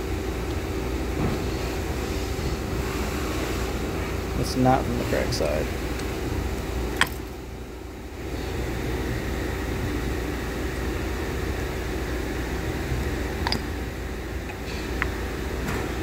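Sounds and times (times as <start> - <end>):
low mechanical hum: 0.0 - 16.0
metal valve parts clicking: 13.4 - 13.7.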